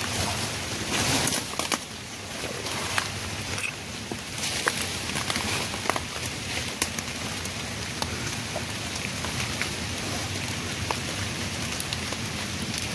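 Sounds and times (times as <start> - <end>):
rain pattering on foliage: 0.0 - 12.9
sharp raindrop ticks: 2.9 - 12.9.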